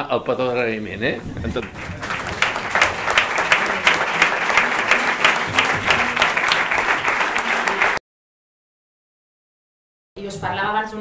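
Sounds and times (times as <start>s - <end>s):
audience applauding: 1.5s - 8.0s.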